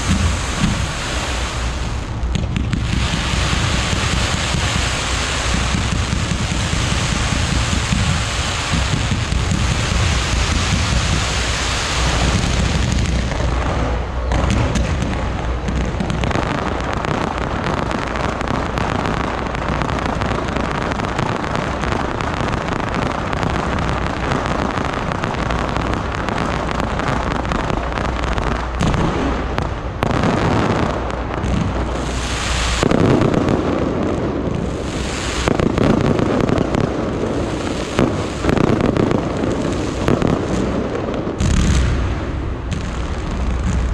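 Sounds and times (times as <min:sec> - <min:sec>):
low rumble: 0:00.0 - 0:17.6, 0:39.1 - 0:43.9
fireworks popping and banging: 0:00.0 - 0:43.9.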